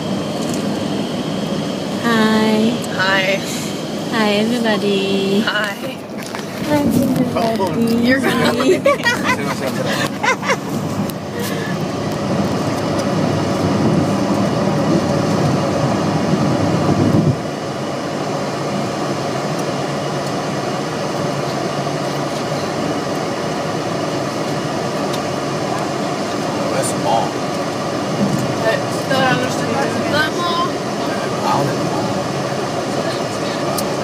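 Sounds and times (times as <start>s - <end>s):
car cabin road and engine noise: 0.0s - 34.0s.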